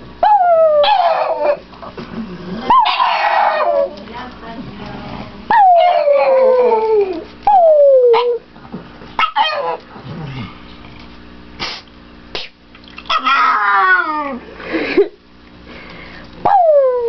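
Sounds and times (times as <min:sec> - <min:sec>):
dog howling: 0:00.2 - 0:01.6, 0:02.6 - 0:04.0, 0:05.5 - 0:08.4, 0:13.1 - 0:14.4, 0:16.4 - 0:17.0
dog yelping: 0:00.2 - 0:01.6, 0:02.7 - 0:03.9, 0:05.5 - 0:08.4, 0:09.2 - 0:09.8, 0:13.1 - 0:14.4.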